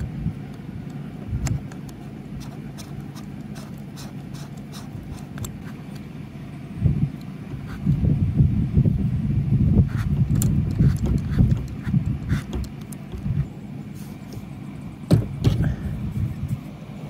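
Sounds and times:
sharp metal clicks: 0.0s - 6.1s, 10.0s - 13.4s
dull knocks and rubbing: 9.8s - 14.5s, 15.1s - 15.7s.

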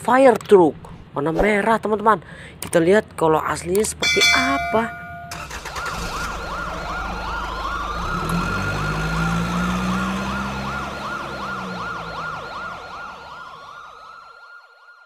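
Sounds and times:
fire truck siren: 4.6s - 15.0s.

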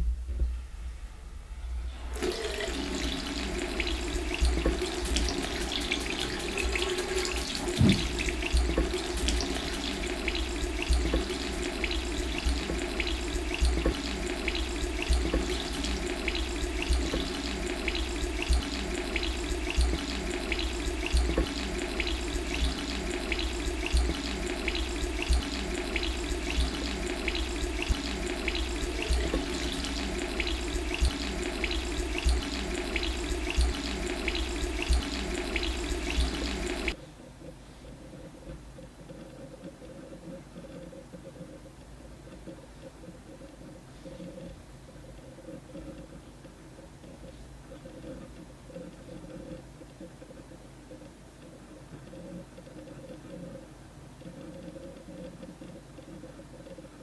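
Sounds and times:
tap water running into sink: 2.2s - 37.0s
water splashing: 2.2s - 37.0s.

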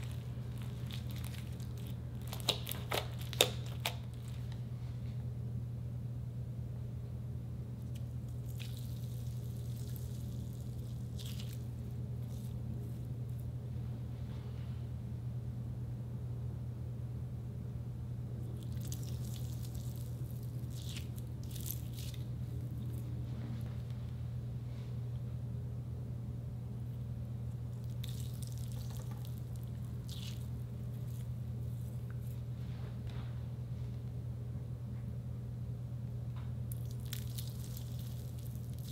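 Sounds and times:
gel bead squished in hand: 0.0s - 4.5s
gel beads squelching: 0.0s - 4.6s, 7.9s - 12.6s, 18.6s - 23.0s, 27.8s - 32.4s, 36.7s - 38.9s
steady low hum: 0.0s - 38.9s.

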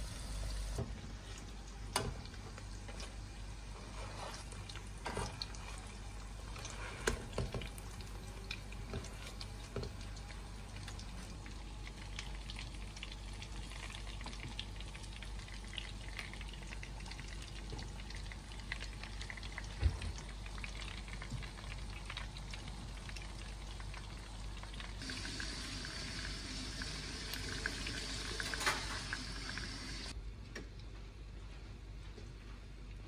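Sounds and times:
food sizzling in oil: 25.0s - 30.1s.

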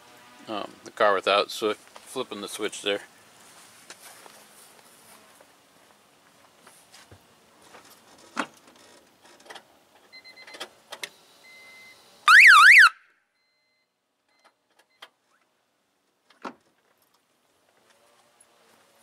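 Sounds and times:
alarm siren warble: 12.3s - 13.0s.

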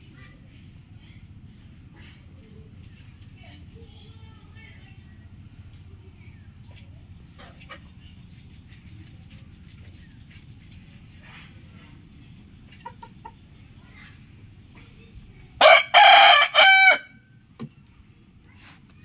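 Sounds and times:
faint chicken clucks: 12.3s - 13.6s
rooster crowing: 15.6s - 17.2s.

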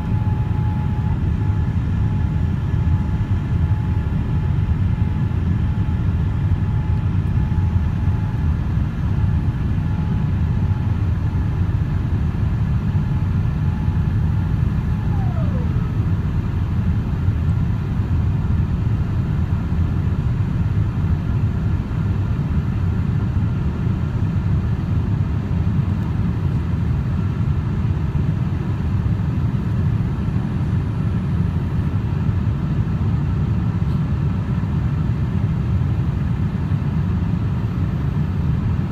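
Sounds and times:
airplane cabin rumble: 0.0s - 26.9s
faint descending whine: 13.6s - 16.2s.

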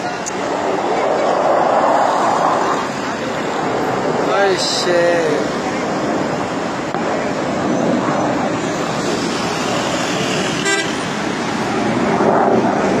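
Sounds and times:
highway traffic noise: 0.0s - 13.0s
vehicle horns tooting: 10.6s - 11.0s.

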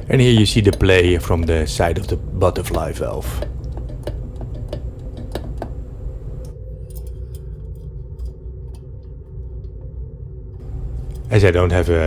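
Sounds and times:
light metallic clicks and ticks: 0.0s - 9.0s
steady low hum: 0.0s - 12.0s.

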